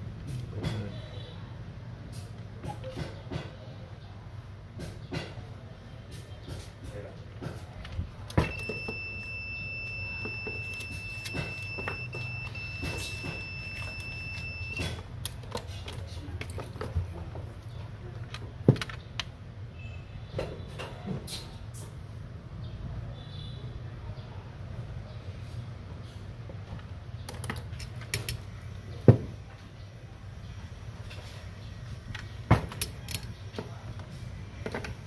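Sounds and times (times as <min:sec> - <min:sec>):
continuity buzzer beep: 0:08.4 - 0:15.0.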